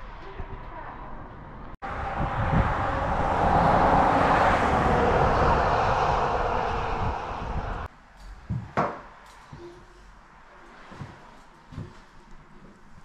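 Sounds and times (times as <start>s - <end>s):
car passing: 1.8s - 7.9s.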